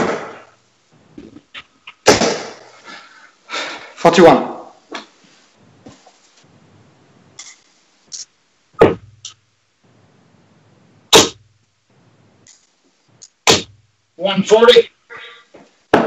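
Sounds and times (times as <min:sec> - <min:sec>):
darts striking dartboard: 0:00.0 - 0:00.5, 0:02.1 - 0:02.6, 0:08.8 - 0:09.4, 0:11.1 - 0:11.5, 0:13.4 - 0:13.8.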